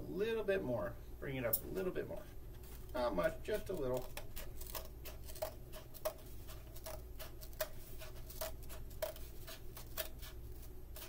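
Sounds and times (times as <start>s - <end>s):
scissors snipping cardboard: 3.6s - 11.0s.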